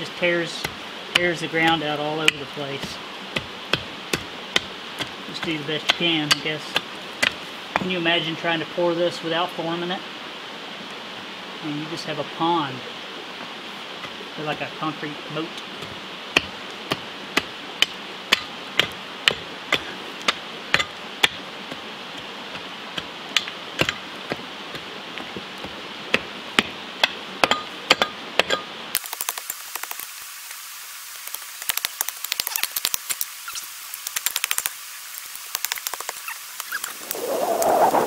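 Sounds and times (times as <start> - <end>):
loose rock clicking and scraping: 0.5 - 7.9, 31.3 - 38.0
pick striking rocky ground: 0.5 - 8.0, 15.8 - 30.1.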